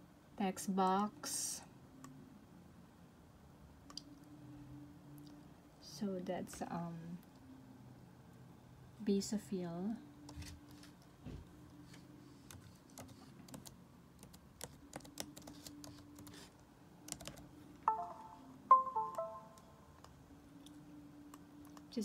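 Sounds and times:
laptop keyboard clicks: 17.1 - 17.5
electronic chime: 17.9 - 19.8.

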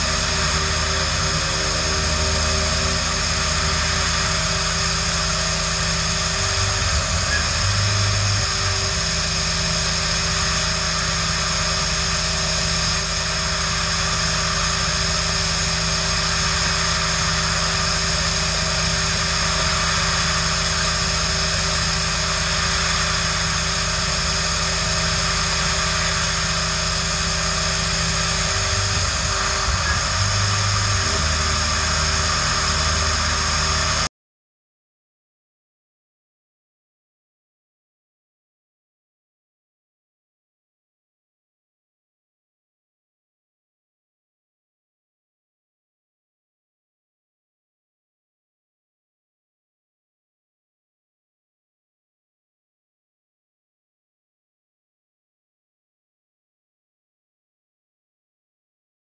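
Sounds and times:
cnc mill whine: 0.0 - 34.1.

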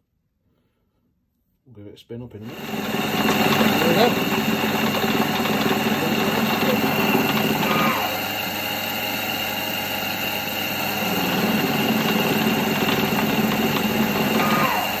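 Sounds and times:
lathe motor humming and whining: 2.4 - 15.0
short falling whine: 5.4 - 8.4, 10.4 - 15.0.

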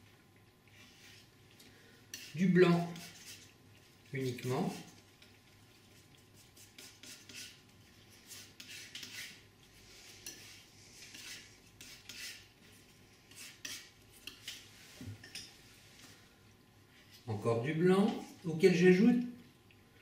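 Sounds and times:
painting knife scraping paint: 2.1 - 5.3, 6.0 - 12.6, 13.3 - 15.5.

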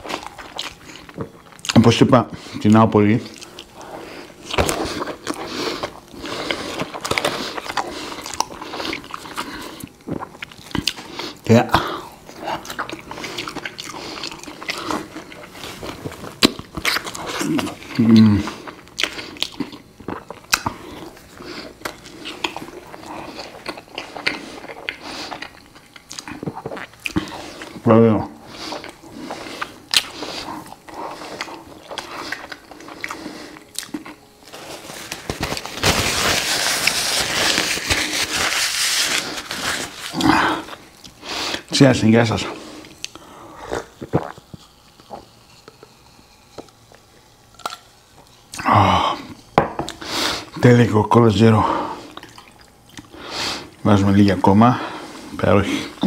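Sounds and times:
man chewing crispy food: 0.0 - 50.6, 51.7 - 53.9
person gulping: 43.7 - 45.3.

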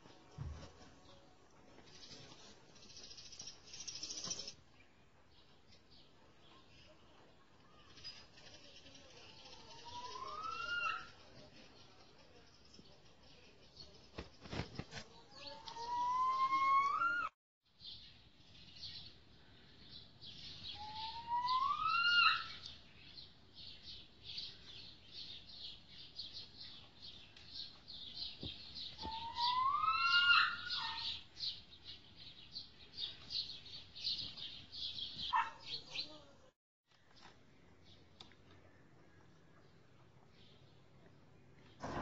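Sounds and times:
small birds chirping: 1.8 - 16.6, 17.8 - 41.9.

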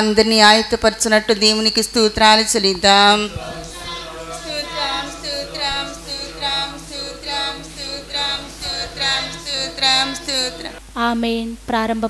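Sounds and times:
congregation singing: 2.8 - 10.8
leader calling out: 3.2 - 10.8.

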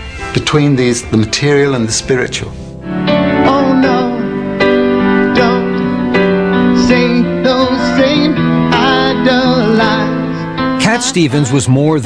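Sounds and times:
piano chords: 0.0 - 12.0
person singing: 3.1 - 11.8.

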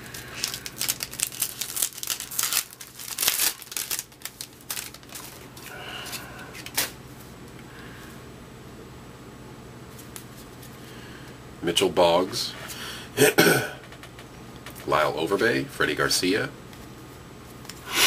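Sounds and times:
wrapper tearing and crinkling: 0.0 - 6.9.

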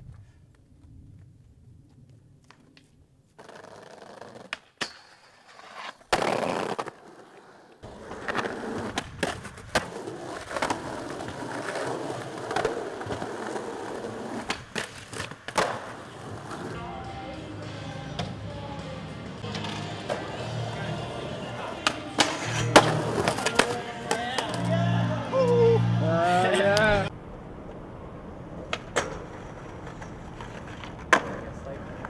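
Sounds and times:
skateboard wheels rolling on concrete: 0.0 - 32.0
skateboard clacks and impacts: 7.8 - 16.7, 28.6 - 32.0.

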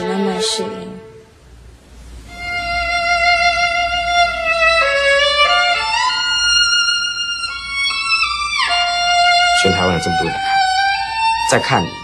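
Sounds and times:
solo violin melody: 0.0 - 1.3, 2.3 - 12.0.

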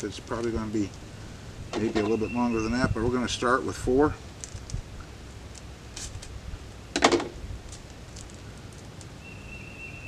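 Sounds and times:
plastic packet crinkling: 7.7 - 9.1.

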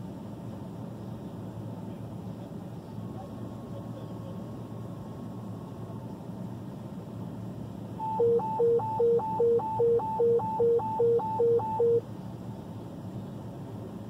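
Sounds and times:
vehicle cab hum: 0.0 - 14.0
two-tone radio dispatch alert: 8.0 - 12.0.

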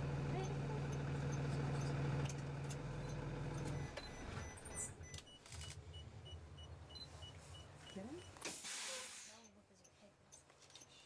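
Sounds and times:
vehicle engine idling: 0.0 - 4.7.

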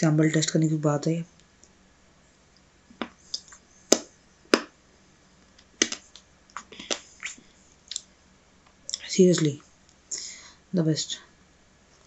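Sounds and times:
wet mouth clicks and lip smacks: 3.0 - 4.1, 5.8 - 8.1.

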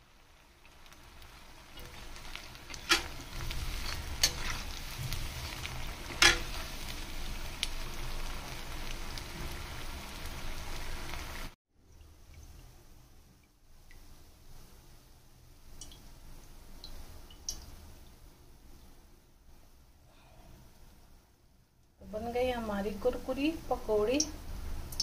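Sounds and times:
deep-frying sizzle in oil: 0.0 - 21.2, 22.1 - 25.0
metal spoon clinking on pan: 6.1 - 6.6.

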